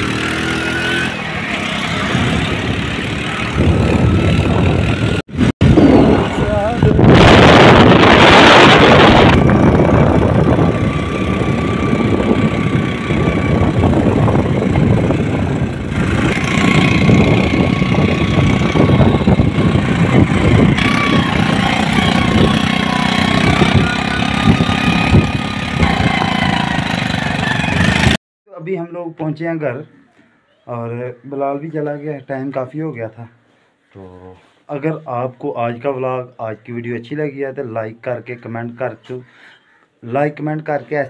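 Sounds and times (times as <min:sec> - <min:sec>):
wind rushing over microphone: 0:01.9 - 0:28.2
vehicle engine running: 0:08.9 - 0:28.2.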